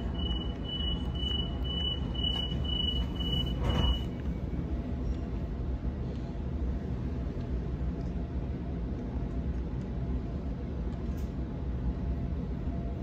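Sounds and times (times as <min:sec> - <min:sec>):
train wheels rumbling: 0:00.0 - 0:08.8.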